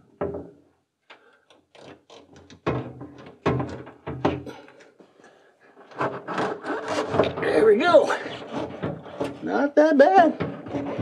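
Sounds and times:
rubbing scrape: 5.7 - 11.0.

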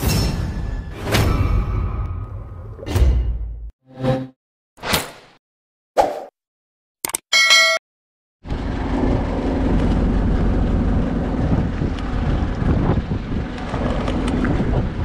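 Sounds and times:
boat engine running: 8.5 - 15.0
wind buffeting microphone: 8.5 - 15.0.

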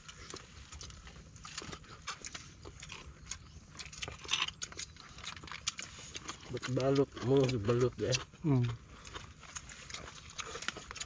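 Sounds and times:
chewing clicks and smacks: 0.0 - 11.0.

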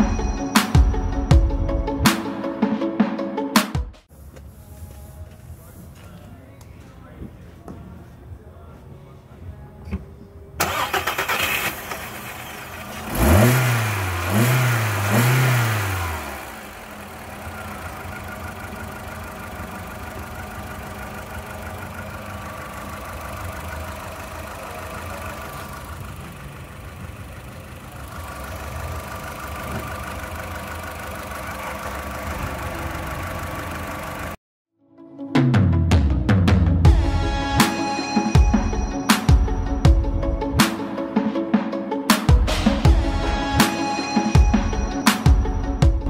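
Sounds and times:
car engine starting and revving: 10.6 - 34.4.

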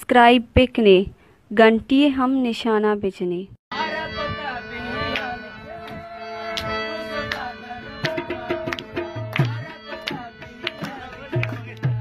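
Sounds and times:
sharp percussion strikes: 6.5 - 12.0.

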